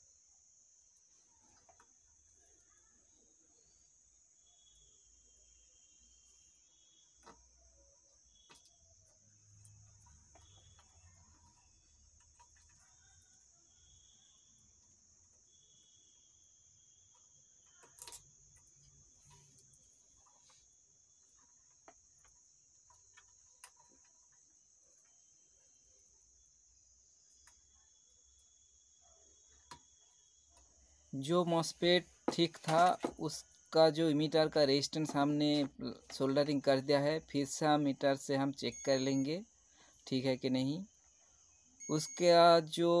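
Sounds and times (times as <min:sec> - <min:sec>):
faint high-pitched whine: 0:00.0 - 0:43.0.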